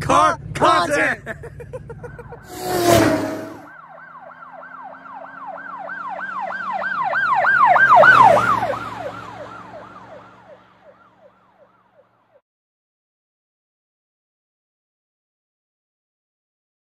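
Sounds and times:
vehicle hum: 0.0s - 11.0s
emergency siren yelping: 3.6s - 12.3s.

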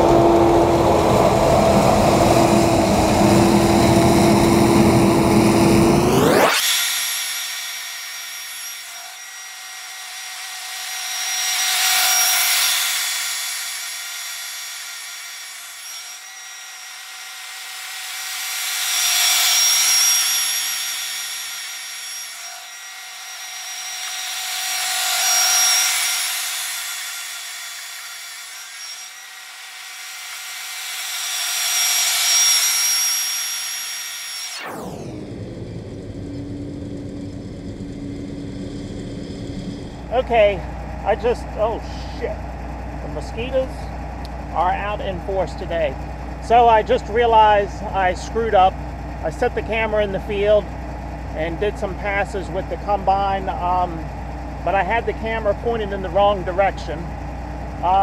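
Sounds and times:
low engine hum: 0.0s - 6.5s, 34.8s - 57.9s
high thin machine whine: 0.0s - 58.0s.

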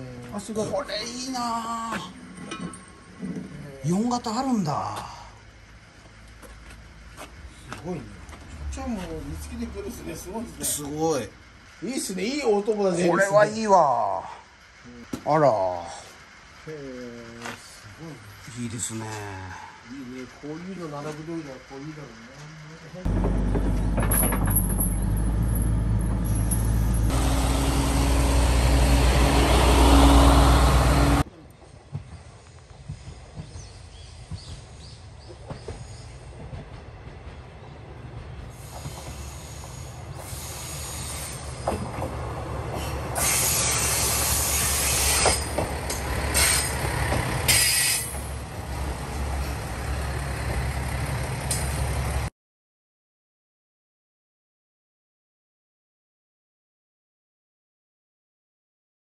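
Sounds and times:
diesel railcar approaching: 0.0s - 52.3s
excavator engine running: 19.7s - 31.3s, 34.2s - 52.3s
wheel and brake squeals: 23.7s - 27.2s, 42.7s - 48.4s.

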